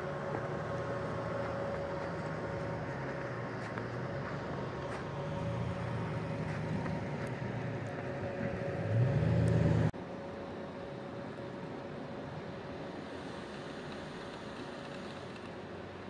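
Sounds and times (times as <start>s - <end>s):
car engine revving: 0.0s - 10.0s
steady hiss: 12.7s - 16.0s.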